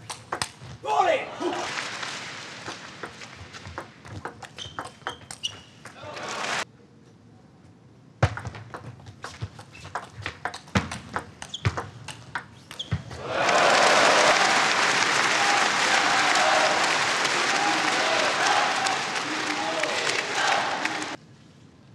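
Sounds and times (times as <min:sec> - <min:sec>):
hall noise: 0:13.6 - 0:21.2.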